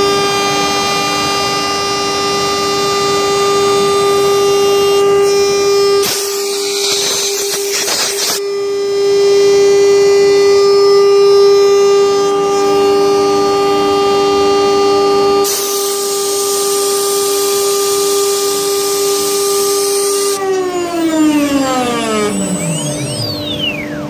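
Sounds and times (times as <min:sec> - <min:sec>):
router spindle high-pitched whine: 0:00.0 - 0:24.0
hiss: 0:06.0 - 0:08.4, 0:15.5 - 0:17.6.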